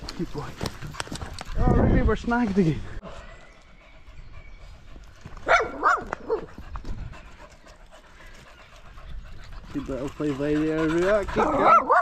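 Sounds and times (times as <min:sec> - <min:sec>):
dogs yipping: 0:04.1 - 0:12.0
dogs grumbling: 0:07.4 - 0:12.0.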